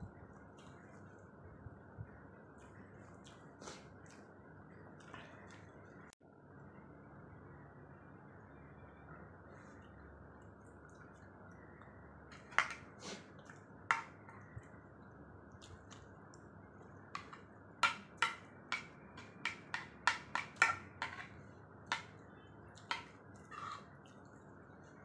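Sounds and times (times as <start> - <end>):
spoon scraping plastic bowl: 20.0 - 21.3, 22.9 - 24.0.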